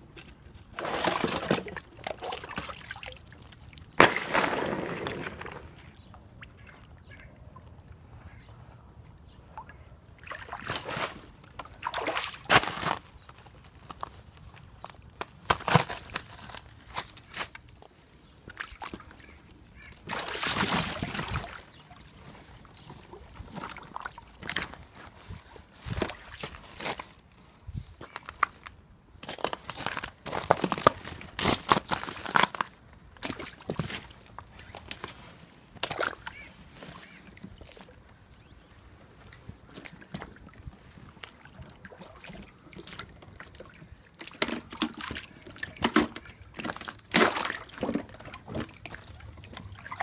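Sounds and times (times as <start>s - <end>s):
ice scraping and water sloshing: 0.0s - 8.4s, 9.6s - 50.0s
thin ice cracking and crunching: 12.4s - 17.8s, 28.1s - 35.2s, 44.2s - 48.6s.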